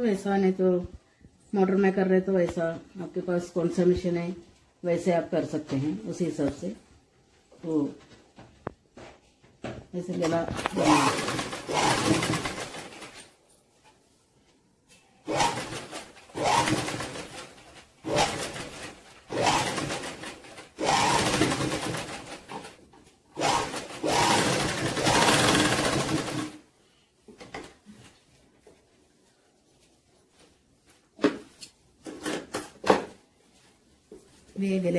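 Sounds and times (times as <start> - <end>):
sewing machine needle clatter: 10.3 - 13.2, 23.4 - 26.6.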